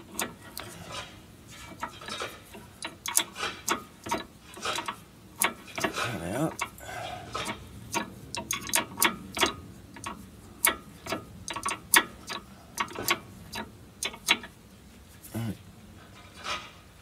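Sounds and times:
hand tools clicking on bolts: 0:00.0 - 0:14.5.

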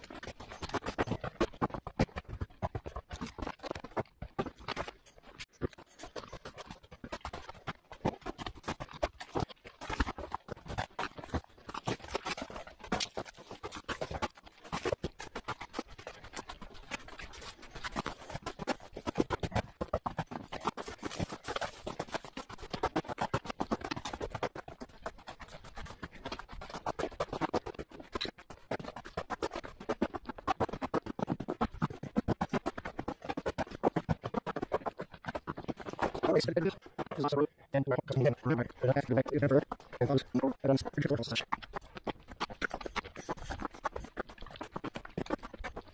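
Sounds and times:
footsteps crunching on snow: 0:00.0 - 0:24.5.

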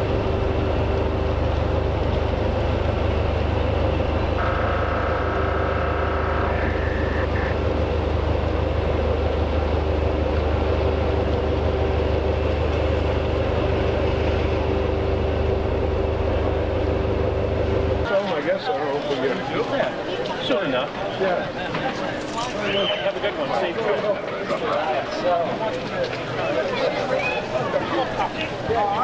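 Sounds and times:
high whine: 0:00.0 - 0:18.1
ferry engines idling: 0:00.0 - 0:29.0.

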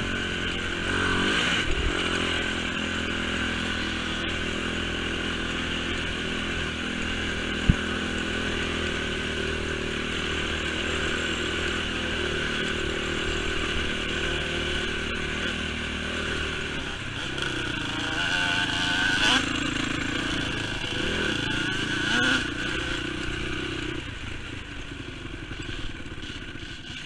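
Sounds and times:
quad bike engine running: 0:00.0 - 0:27.0.

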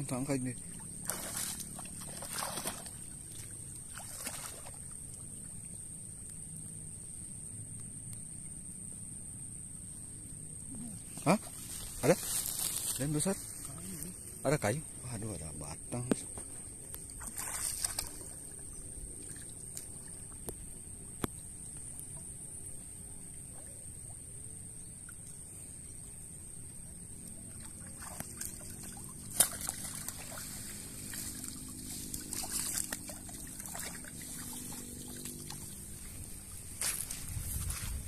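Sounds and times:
water sloshing and trickling: 0:00.1 - 0:05.8, 0:16.3 - 0:22.4, 0:27.0 - 0:38.0
net lifted out of water: 0:01.0 - 0:04.9, 0:17.1 - 0:18.4, 0:27.6 - 0:37.2.

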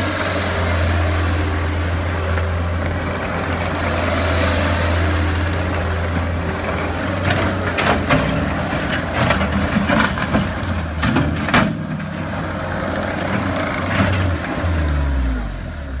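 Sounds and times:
tracks and bucket clanking: 0:00.0 - 0:15.3
diesel engine running: 0:00.0 - 0:16.0.

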